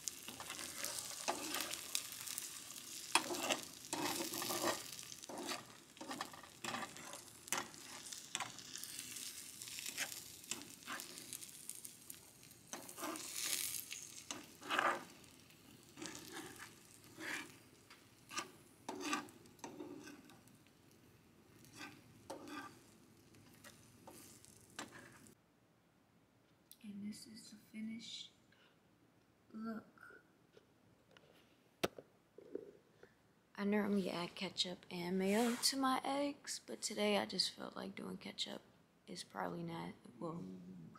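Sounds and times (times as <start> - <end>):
utensil scraping a pan: 0.0 - 11.6, 12.7 - 15.3, 15.9 - 20.5, 21.6 - 25.4, 35.3 - 35.8
eggs sizzling in a pan: 0.0 - 25.4.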